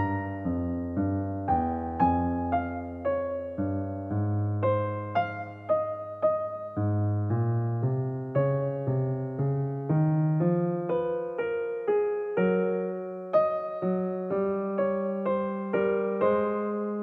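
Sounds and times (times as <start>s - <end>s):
gentle piano notes: 0.0s - 17.0s.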